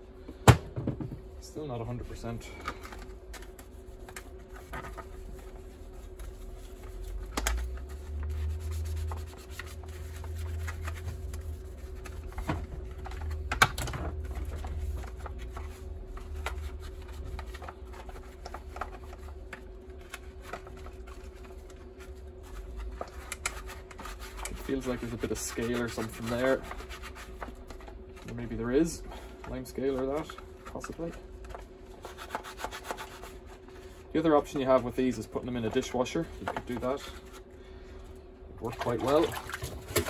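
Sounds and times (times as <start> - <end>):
sponge scrubbing plastic: 3.4 - 13.3, 20.0 - 28.6, 32.0 - 37.4, 38.6 - 40.0.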